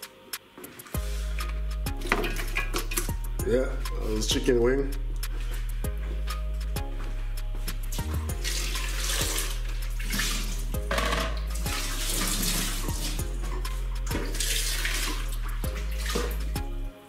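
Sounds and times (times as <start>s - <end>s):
background music with bass: 0.0s - 17.0s
water running from tap: 1.8s - 3.3s, 7.9s - 16.7s.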